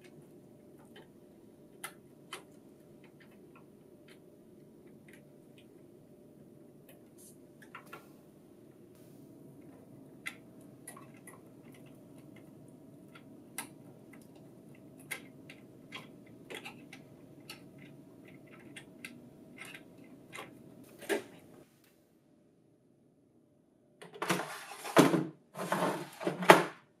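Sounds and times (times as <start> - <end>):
faint steady hum: 0.0 - 24.2
paper tray sliding into printer: 24.2 - 26.7.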